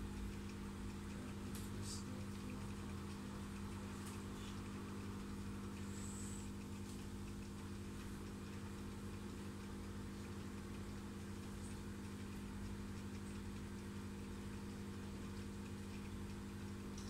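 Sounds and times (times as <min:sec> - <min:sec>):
aquarium pump humming: 0:00.0 - 0:17.0.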